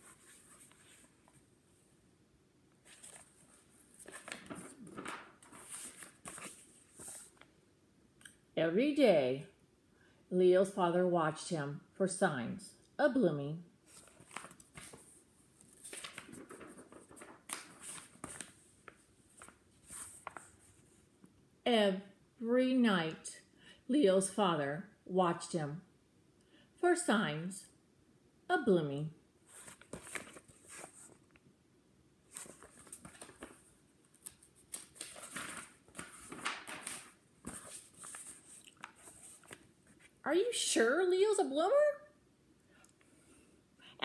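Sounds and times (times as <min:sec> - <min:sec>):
book pages rustling: 0:00.0 - 0:01.5, 0:02.8 - 0:07.5, 0:13.9 - 0:21.1, 0:29.5 - 0:31.4, 0:32.3 - 0:40.2
page flaps and clicks: 0:04.0 - 0:07.1, 0:14.0 - 0:15.1, 0:15.8 - 0:20.5, 0:34.2 - 0:39.6.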